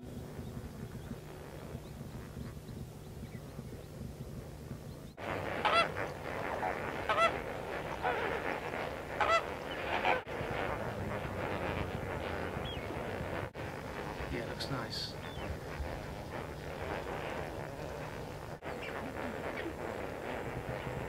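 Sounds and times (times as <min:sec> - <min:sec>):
flock of flamingos honking: 0:05.2 - 0:21.0.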